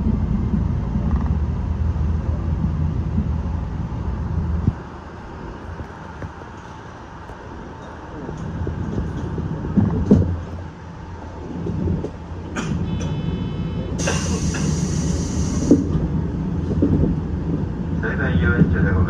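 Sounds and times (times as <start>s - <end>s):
train equipment humming low: 0.0s - 19.0s
loud hiss: 13.0s - 15.9s.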